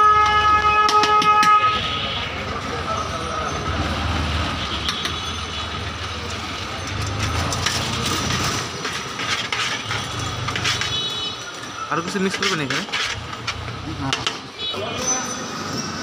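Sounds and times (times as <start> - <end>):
street noise rumble: 0.0 - 16.0
metal clicks and scrapes in bowl: 6.2 - 11.1, 12.0 - 14.4.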